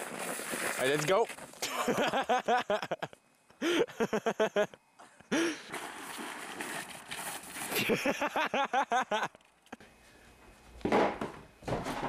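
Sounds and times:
snowboard scraping down snow: 0.0 - 1.6, 5.4 - 8.4.

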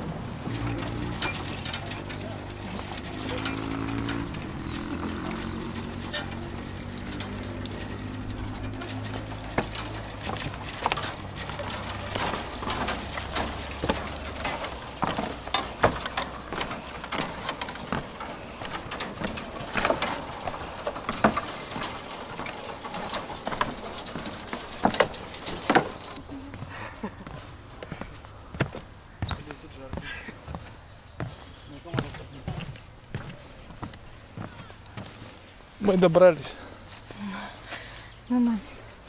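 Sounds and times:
footsteps on bridge deck: 0.0 - 39.0.

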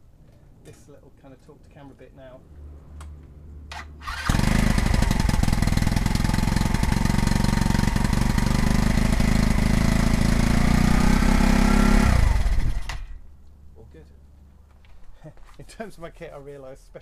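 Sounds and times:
paramotor engine running: 4.2 - 13.0.

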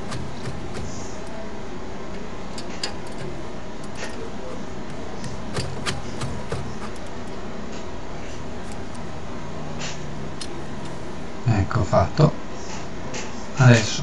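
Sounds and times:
hand tools clicking on metal: 0.0 - 1.4, 2.5 - 7.3
steady background hiss: 0.0 - 14.0.

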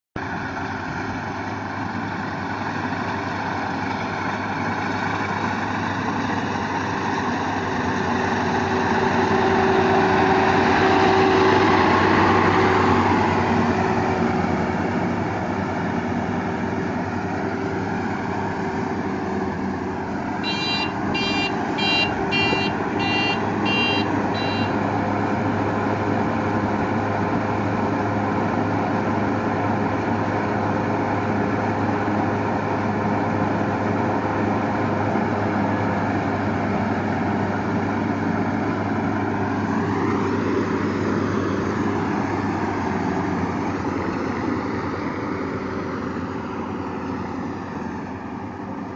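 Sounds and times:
combine harvester engine and threshing: 0.2 - 48.9
high beeping: 20.4 - 24.8.

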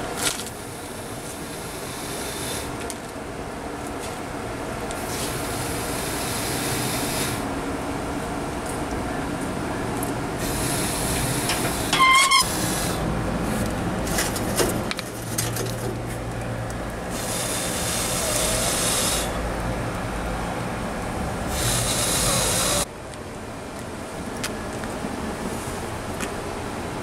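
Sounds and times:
whooshing breaths blown on coals: 1.5 - 2.8, 10.4 - 13.6, 17.1 - 19.4, 21.5 - 22.8
door hinge squealing: 11.9 - 12.6.

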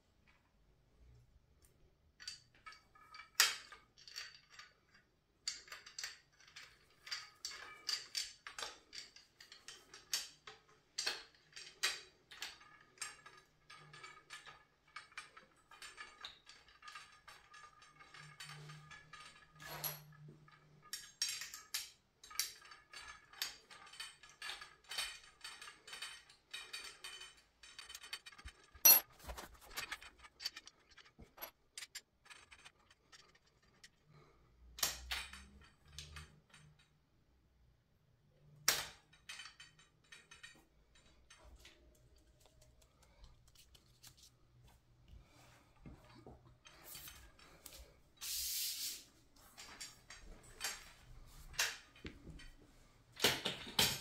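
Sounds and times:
metal tubes clicking and knocking: 1.1 - 54.0.

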